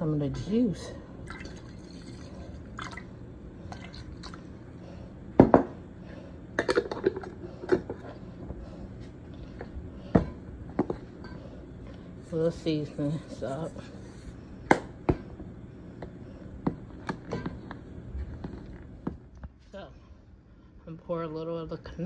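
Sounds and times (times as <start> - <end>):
liquid pouring into a pot: 1.2 - 3.1.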